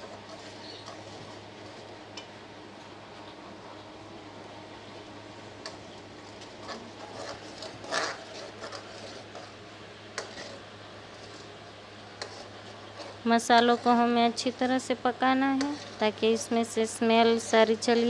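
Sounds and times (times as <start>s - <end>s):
metal spoon scraping a metal pan: 6.6s - 9.6s, 10.2s - 11.6s, 12.2s - 18.0s.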